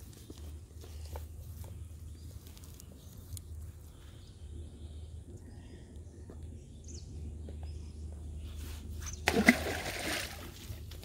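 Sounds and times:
net and dry grass rustling: 0.0 - 4.2
low steady hum: 0.0 - 11.0.

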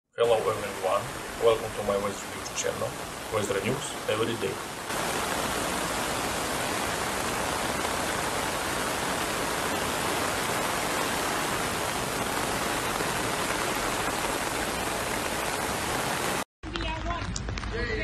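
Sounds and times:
floodwater rushing: 0.2 - 16.4
heavy rain pouring: 0.2 - 16.5.

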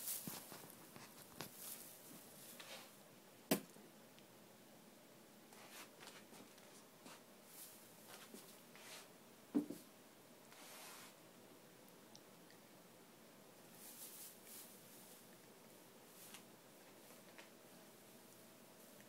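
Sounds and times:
faint rustling: 0.0 - 3.0, 13.7 - 19.0.

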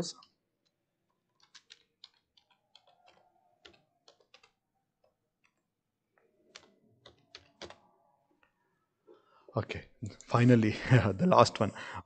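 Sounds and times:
computer keyboard typing: 0.2 - 8.0.

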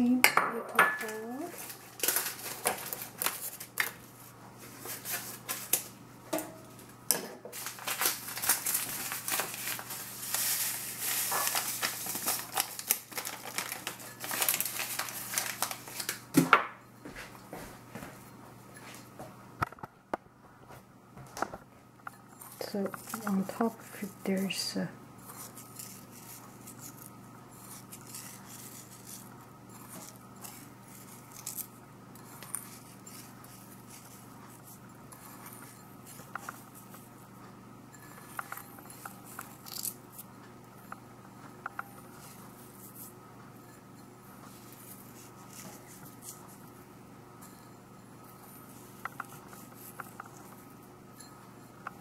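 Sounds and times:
steady low hum: 0.0 - 52.0
sugar patters and ticks: 22.0 - 52.0.

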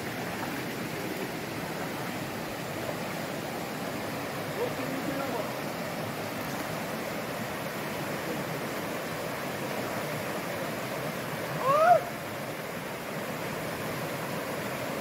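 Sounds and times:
river rushing over stones: 0.0 - 15.0
person shouting: 11.6 - 12.1.

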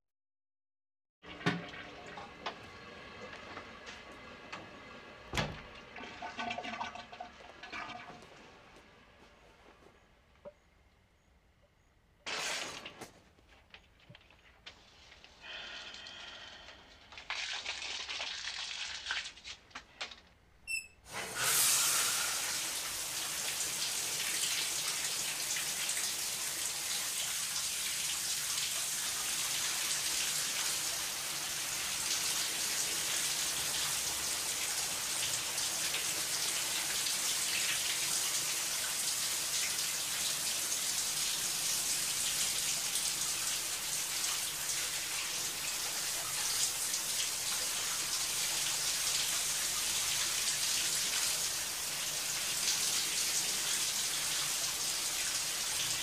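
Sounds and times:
small noises: 7.3 - 21.2
shower spray hissing: 21.1 - 35.2.

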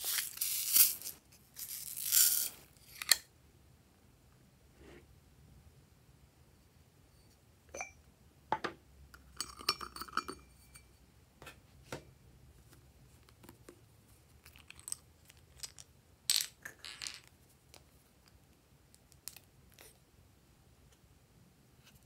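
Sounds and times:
rustling: 0.0 - 3.0.

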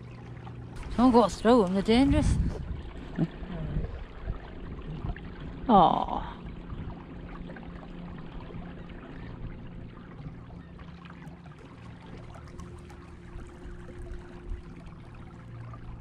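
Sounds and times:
water trickling and dripping: 0.0 - 16.0.

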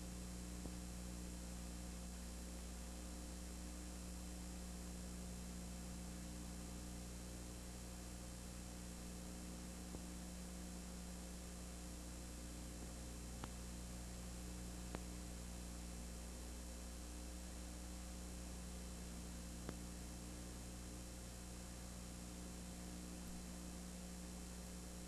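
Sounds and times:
electrical mains hum: 0.0 - 25.0
tape hiss: 0.0 - 25.0
faint clicks: 12.8 - 13.6, 14.9 - 15.1.

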